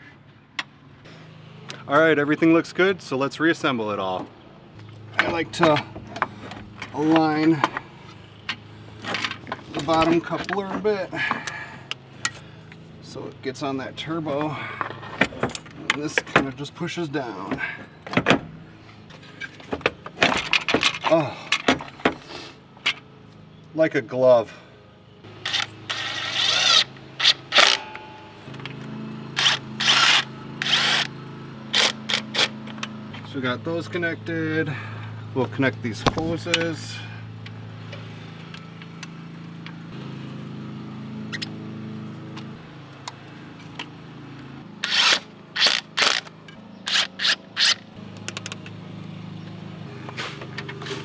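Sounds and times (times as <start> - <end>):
cordless driver motor whirring: 25.3 - 27.8, 29.4 - 31.1, 31.7 - 32.6, 44.8 - 48.5.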